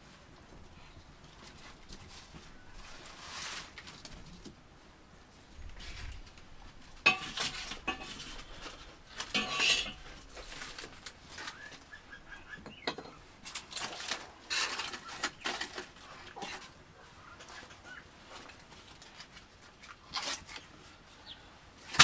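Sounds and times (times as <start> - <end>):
metal spatula scraping frying pan: 7.1 - 8.6, 9.2 - 10.3.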